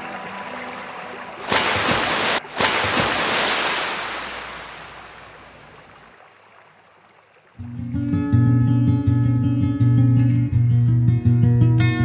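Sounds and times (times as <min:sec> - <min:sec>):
rushing water: 0:00.0 - 0:07.8.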